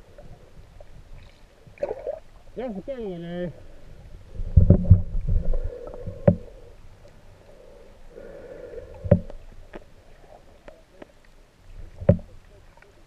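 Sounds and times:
muffled underwater rumble: 0:00.0 - 0:02.6, 0:03.2 - 0:13.0
faint hum: 0:00.0 - 0:13.0
sharp knocks or clicks: 0:09.0 - 0:09.4, 0:12.0 - 0:12.3.

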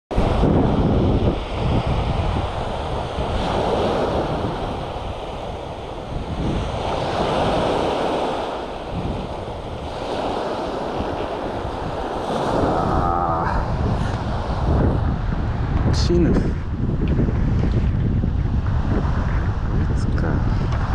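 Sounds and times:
wind buffeting microphone: 0:00.1 - 0:20.9
small waves breaking: 0:00.2 - 0:15.0.

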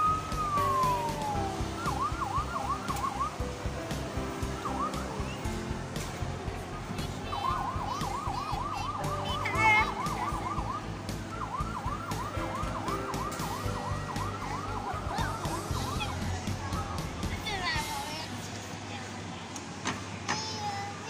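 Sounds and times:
electronic siren wailing: 0:00.0 - 0:03.6, 0:04.3 - 0:05.4, 0:07.2 - 0:17.0.

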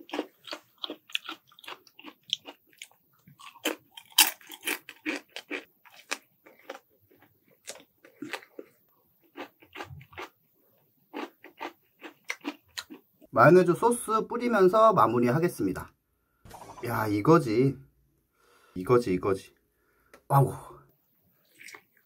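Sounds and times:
chewing and crunching food: 0:00.0 - 0:13.3, 0:21.3 - 0:22.0.

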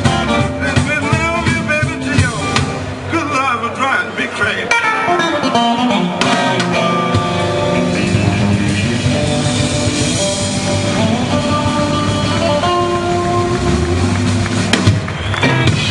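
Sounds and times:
drum kit: 0:00.0 - 0:03.1, 0:04.7 - 0:15.9
electric guitar notes: 0:00.0 - 0:03.1, 0:04.6 - 0:15.9
bass guitar: 0:00.0 - 0:03.7, 0:04.5 - 0:15.9.

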